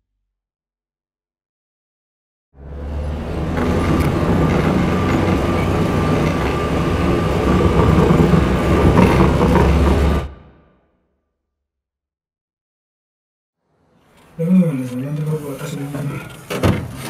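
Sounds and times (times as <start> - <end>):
low engine drone: 2.6 - 10.8
vehicle body rattling: 3.2 - 10.3.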